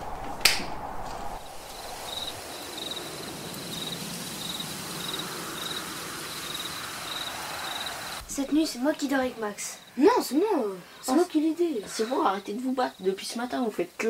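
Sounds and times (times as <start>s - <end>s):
crickets chirping: 0.0s - 14.0s
faint steady hiss: 0.0s - 14.0s
sharp smack: 0.4s - 0.8s.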